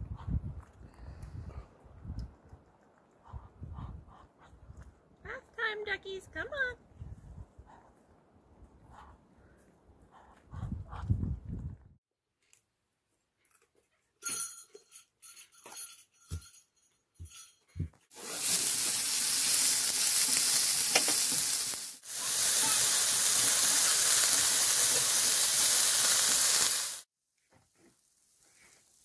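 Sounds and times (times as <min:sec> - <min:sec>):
potatoes and onions sizzling in skillet: 0:18.1 - 0:27.1, 0:27.7 - 0:29.0.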